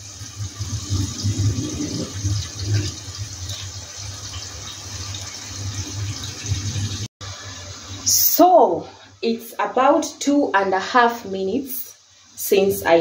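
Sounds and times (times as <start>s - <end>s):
sauce bubbling and sizzling: 0.0s - 8.1s.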